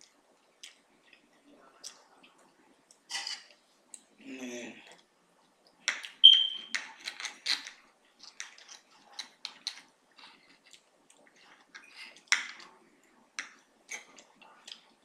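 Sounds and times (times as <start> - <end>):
cutlery scraping a plate: 3.1 - 3.5.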